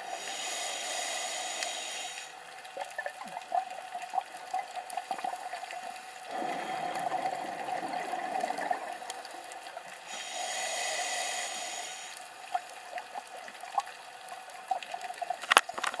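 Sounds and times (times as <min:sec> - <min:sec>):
hissing inhalation through regulator: 0:00.0 - 0:02.4, 0:10.1 - 0:12.7
bubbly exhalation underwater: 0:06.3 - 0:09.5.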